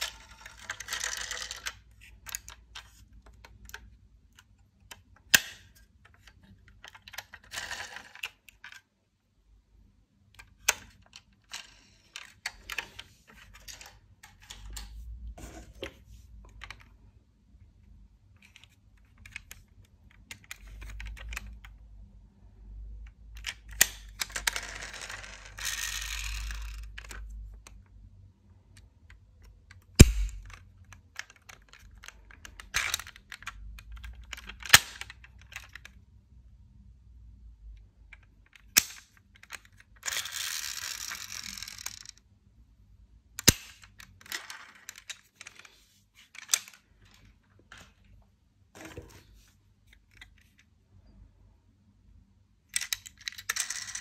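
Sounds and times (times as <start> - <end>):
toy car parts clicking: 0.0 - 8.9, 23.1 - 27.9, 28.7 - 36.0, 38.0 - 42.2, 43.4 - 47.3, 52.7 - 54.0.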